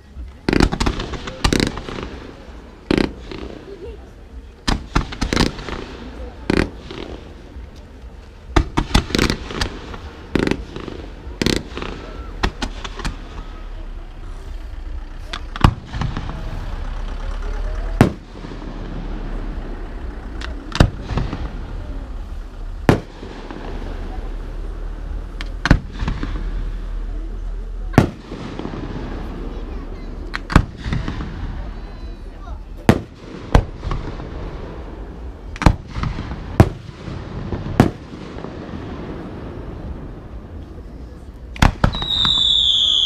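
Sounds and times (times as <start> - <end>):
low background noise: 0.0 - 43.0
firework exploding: 0.2 - 43.0
firework shells bursting: 41.5 - 43.0.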